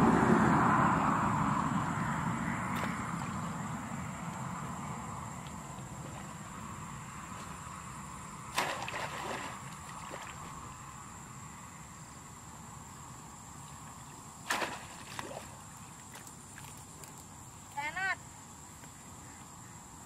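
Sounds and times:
water sloshing: 0:05.3 - 0:10.7, 0:14.4 - 0:17.3
basket splashing into water: 0:08.5 - 0:10.5, 0:14.4 - 0:15.6.

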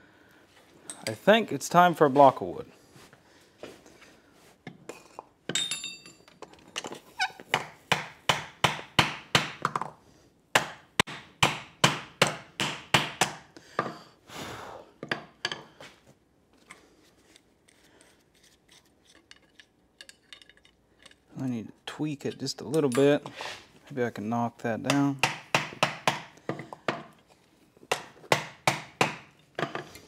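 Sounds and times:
hammer striking metal on wood: 0:07.5 - 0:09.8, 0:10.6 - 0:13.9, 0:24.8 - 0:27.2, 0:27.9 - 0:29.8.

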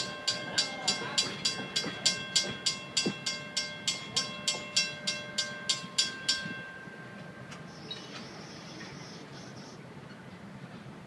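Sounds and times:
crossing bell ringing rapidly: 0:00.0 - 0:07.5
train rumbling: 0:00.0 - 0:11.0.

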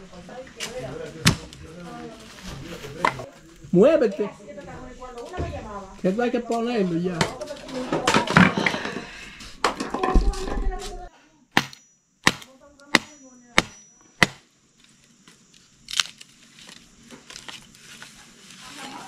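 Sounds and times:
chopping wood: 0:11.6 - 0:14.5.

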